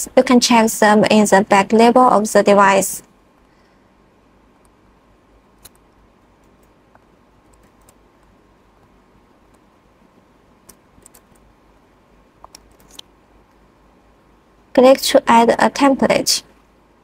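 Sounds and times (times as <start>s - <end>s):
low steady hiss: 0.0s - 17.0s
mouse and keyboard clicks: 5.6s - 8.3s, 10.6s - 11.5s, 12.4s - 13.1s.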